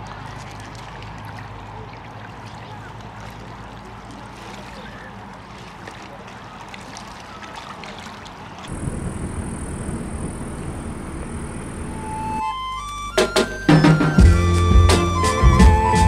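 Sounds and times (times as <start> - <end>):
small waves lapping: 0.0 - 12.4
steady low rumble: 8.7 - 12.6
music: 12.4 - 16.0.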